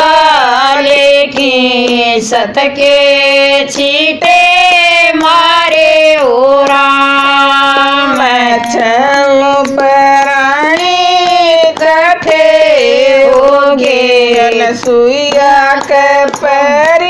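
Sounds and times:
hand claps: 0.0 - 17.0
women singing: 0.0 - 17.0.

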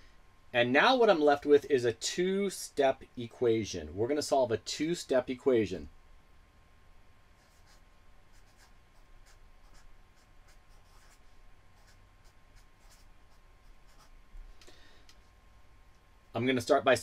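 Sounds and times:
marker pen writing on paper: 7.4 - 14.2.

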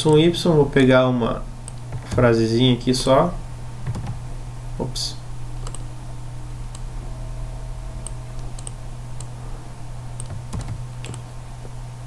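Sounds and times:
steady low hum: 0.0 - 12.0
mouse and keyboard clicks: 10.2 - 11.2.

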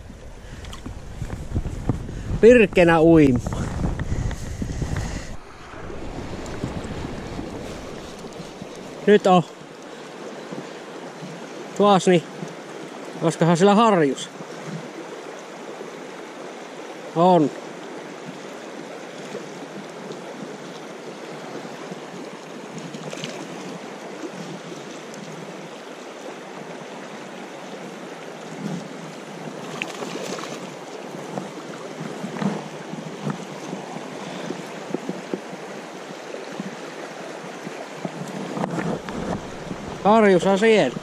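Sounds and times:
river rapids rushing: 4.5 - 10.2, 35.5 - 41.0.

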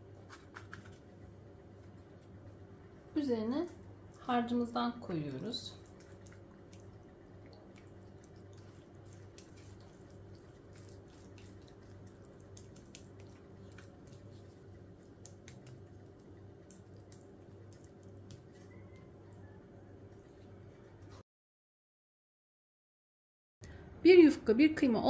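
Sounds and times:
steady low hum: 0.0 - 21.2
wooden spoon spreading filling: 7.8 - 19.0.

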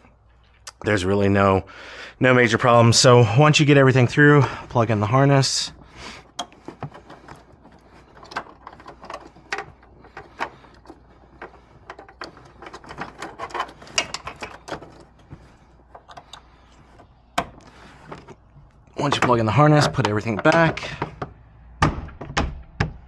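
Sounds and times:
plastic parts clicking: 5.7 - 21.4.

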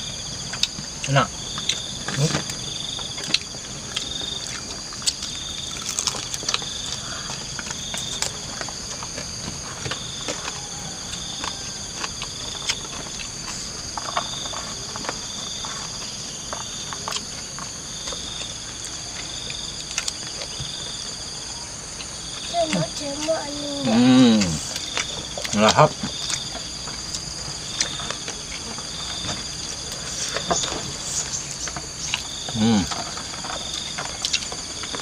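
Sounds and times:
insects buzzing and trilling: 0.0 - 35.0
people eating with hands: 0.0 - 35.0.

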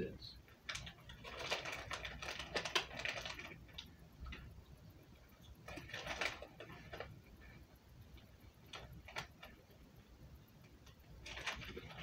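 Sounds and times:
plastic wrapping crinkling: 0.6 - 4.5, 5.5 - 7.5, 8.7 - 9.7, 10.8 - 12.0.

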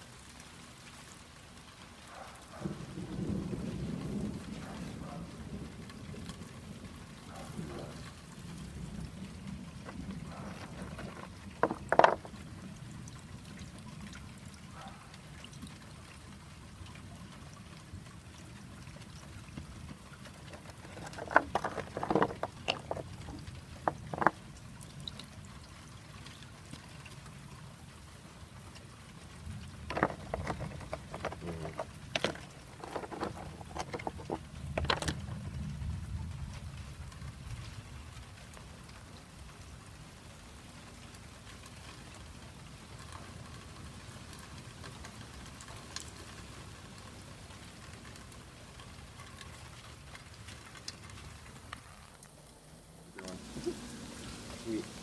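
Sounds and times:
water pouring onto stones: 7.8 - 55.0
sharp knocks and splashes: 9.8 - 12.4, 19.5 - 24.5, 29.8 - 35.4.

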